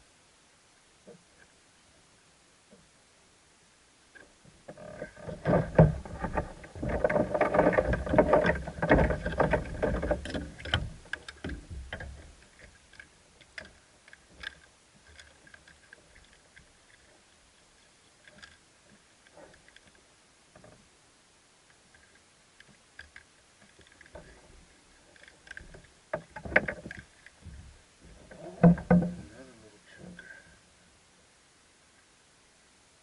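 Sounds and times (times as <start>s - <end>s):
handling rumbling and knocks: 5.0s - 13.0s, 23.8s - 30.4s
light clicks of a lure: 10.2s - 20.8s, 21.7s - 27.4s.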